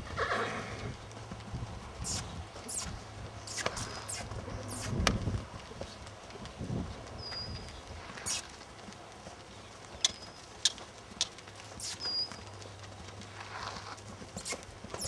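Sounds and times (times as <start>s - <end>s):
hoofbeats on sand: 0.0s - 15.0s.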